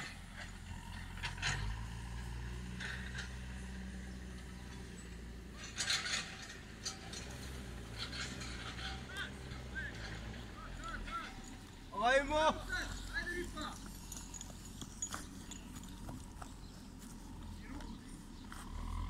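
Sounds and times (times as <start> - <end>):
clattering or scraping bursts: 0.0 - 11.8
engine running at low revs: 0.0 - 11.9, 12.5 - 19.0.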